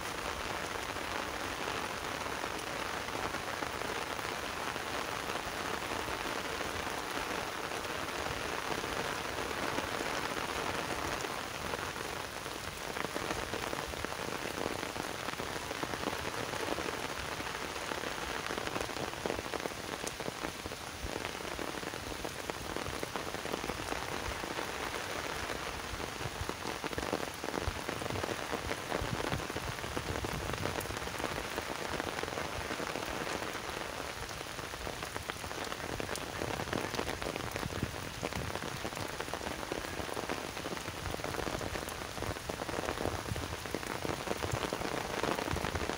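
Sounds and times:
heavy rain on wet ground: 0.0s - 45.9s.

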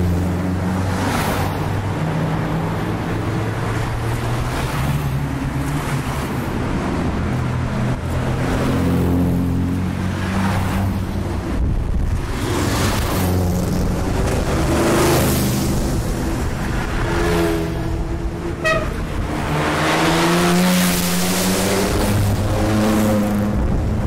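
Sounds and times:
cars driving past: 0.0s - 24.0s
high car horn toot: 18.6s - 19.1s.

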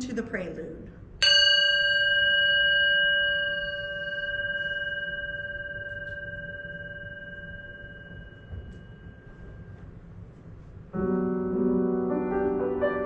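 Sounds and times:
singing bowl ringing: 1.2s - 10.4s.

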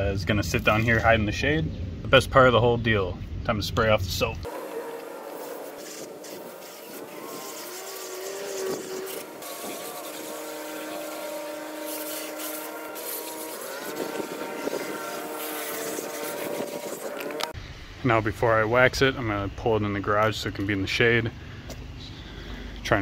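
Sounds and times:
steady multi-tone hum: 0.0s - 23.0s
hose nozzle spraying water: 4.5s - 17.6s.

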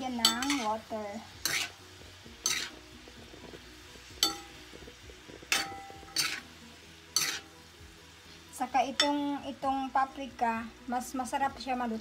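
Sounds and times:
utensil clinking on metal pan: 0.1s - 0.8s, 2.4s - 2.8s, 4.2s - 4.6s, 5.5s - 6.4s, 7.2s - 7.5s, 9.0s - 9.4s.

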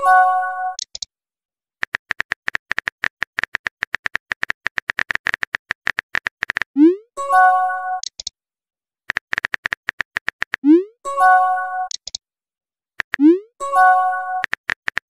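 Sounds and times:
keyboard typing clicks: 0.7s - 1.1s, 1.8s - 6.8s, 8.0s - 8.3s, 9.1s - 10.7s, 11.9s - 12.2s, 13.0s - 13.4s, 14.4s - 15.0s
message received chime: 13.3s - 14.4s.

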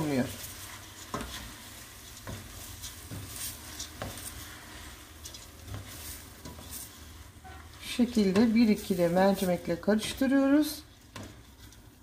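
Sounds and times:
soft steady sizzle: 0.0s - 12.0s
spoon scraping and knocking pot: 0.8s - 10.2s.

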